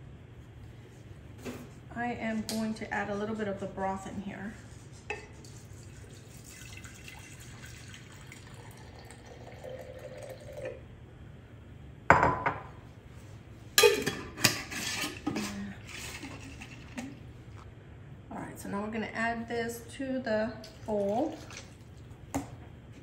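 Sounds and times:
liquid sloshing in jar: 0:20.6 - 0:22.1.

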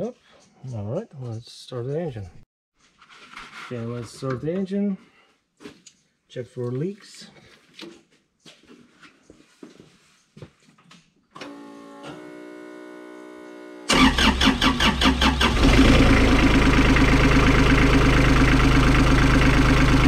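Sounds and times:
starter cranking: 0:13.9 - 0:16.3
diesel engine idling: 0:13.9 - 0:20.0.

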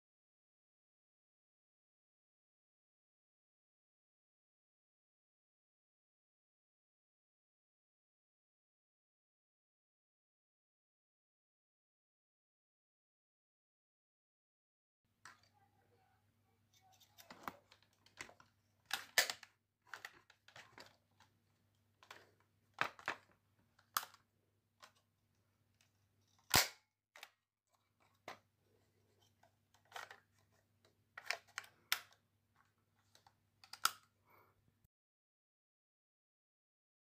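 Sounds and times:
rifle parts clicking and clacking: 0:17.0 - 0:21.3, 0:29.8 - 0:30.3.

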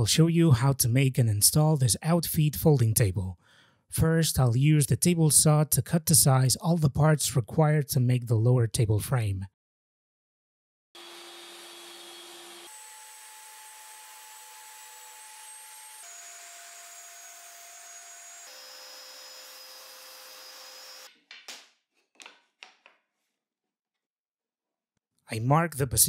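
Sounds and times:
table saw whirring: 0:11.0 - 0:21.1.

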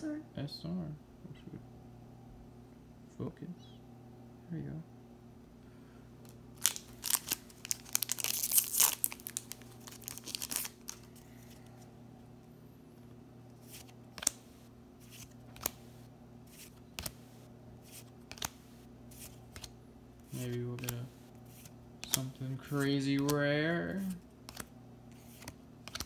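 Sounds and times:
faint low hum: 0:00.0 - 0:26.0
foil pack tearing and crinkling: 0:06.6 - 0:11.1
cards sliding and snapping: 0:13.6 - 0:17.2, 0:17.8 - 0:23.4, 0:24.1 - 0:26.0.

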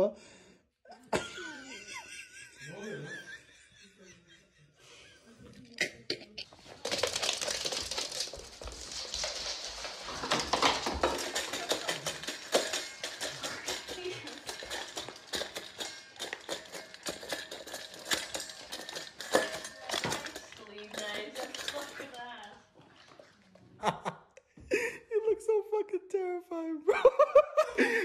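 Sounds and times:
metal dog bowl clinking: 0:06.6 - 0:23.3.

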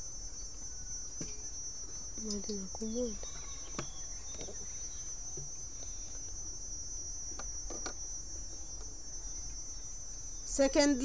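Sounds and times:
insect trilling: 0:00.0 - 0:11.0.

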